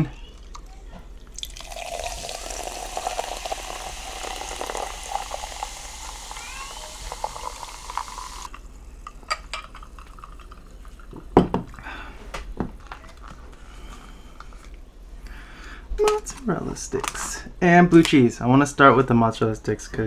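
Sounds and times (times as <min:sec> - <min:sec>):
sparkling water pouring and fizzing: 0:00.3 - 0:08.6.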